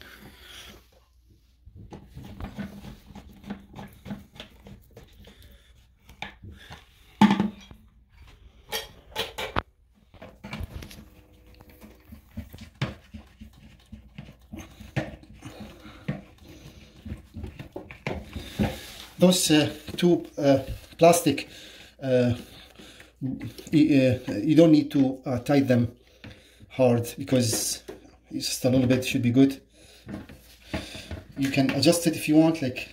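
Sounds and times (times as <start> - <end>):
plastic parts knocking and clicking: 6.1 - 7.8, 8.7 - 19.1.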